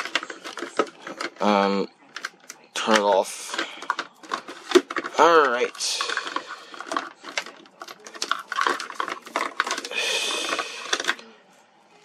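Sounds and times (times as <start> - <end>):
packaging clicks and rustles: 0.0 - 11.2
packaging scraping slide: 5.7 - 11.2.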